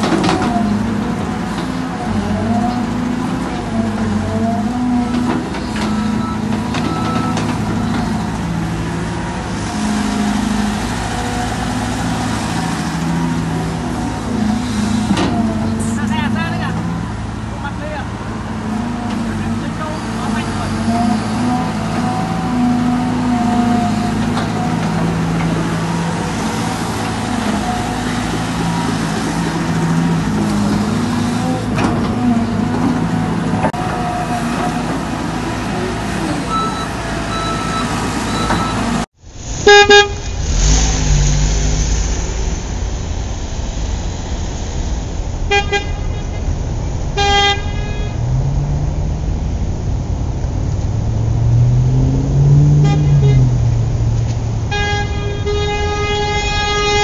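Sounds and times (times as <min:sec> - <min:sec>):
short horn toots: 0:39.6 - 0:40.5, 0:52.7 - 0:53.7, 0:54.6 - 0:57.0.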